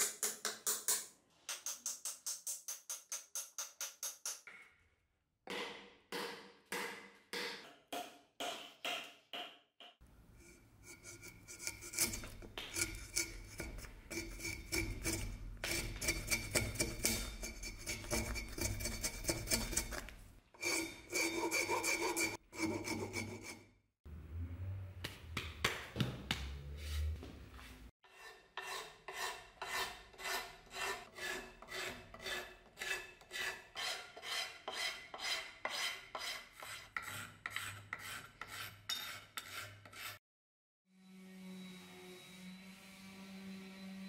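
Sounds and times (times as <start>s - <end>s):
scratchy rubbing on wood: 10.8s - 23.5s, 28.6s - 40.2s.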